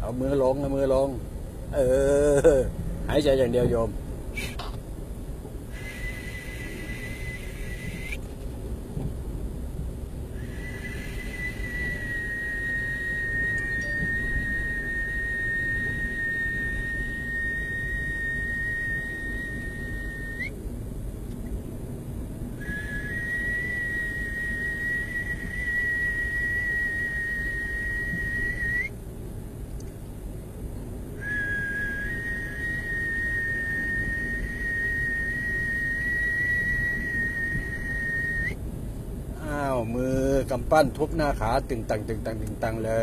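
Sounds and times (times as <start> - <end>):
high whistle tone: 5.7 - 8.2, 10.4 - 20.6, 22.6 - 28.9, 31.2 - 38.6.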